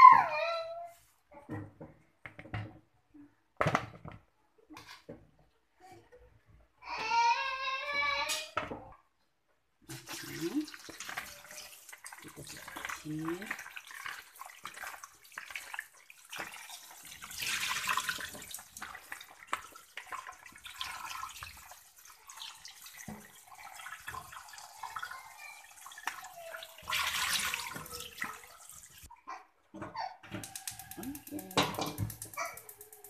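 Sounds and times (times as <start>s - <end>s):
water splashing: 9.9s - 29.1s
tap running into a bowl: 30.3s - 33.0s.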